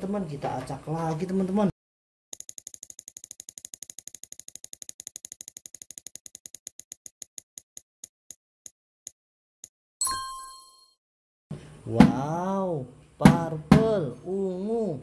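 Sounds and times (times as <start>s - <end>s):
prize wheel ticking: 2.4s - 7.8s.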